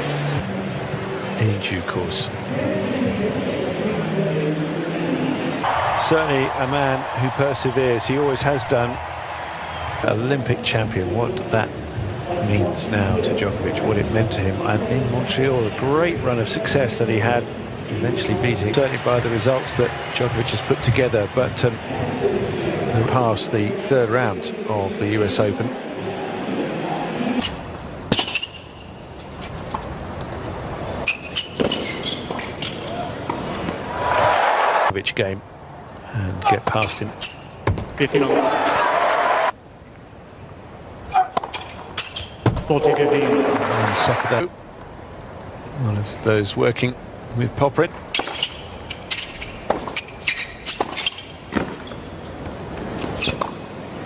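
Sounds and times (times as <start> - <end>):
stadium crowd hush: 5.3 - 10.1
shoe squeak on court: 27.4 - 29.1, 31.0 - 33.0, 36.7 - 37.7, 41.1 - 42.5, 48.1 - 52.1, 53.0 - 53.7.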